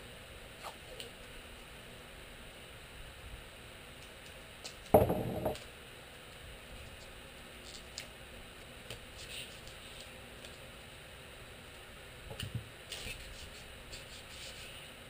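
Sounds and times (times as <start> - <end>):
tape roll clattering on workbench: 5.0 - 5.6.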